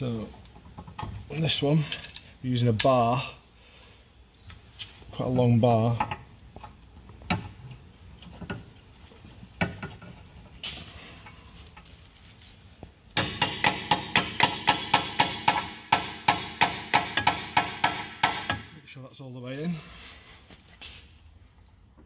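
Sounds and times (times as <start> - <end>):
hammer striking metal: 13.2 - 18.7.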